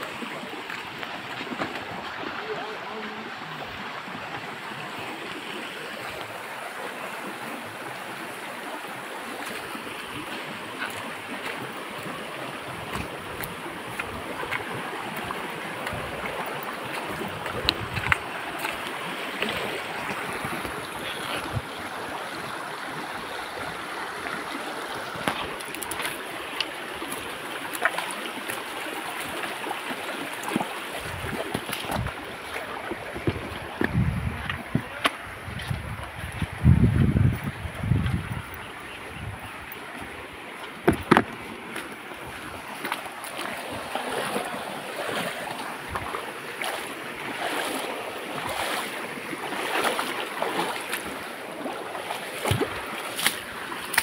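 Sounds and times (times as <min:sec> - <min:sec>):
stream flowing over rocks: 0:00.0 - 0:54.0.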